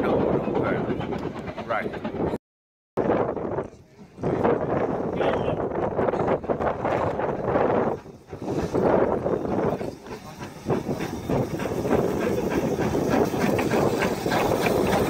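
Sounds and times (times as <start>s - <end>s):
train wheels clattering over rails: 0.0s - 2.4s, 5.7s - 15.0s
steam hissing: 7.2s - 15.0s.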